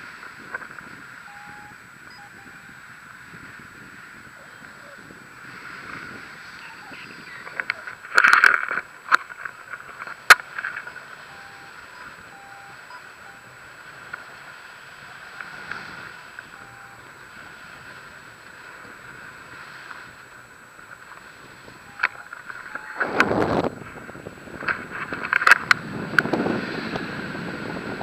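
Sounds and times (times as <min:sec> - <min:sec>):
wind rushing over camera: 0:00.0 - 0:28.0.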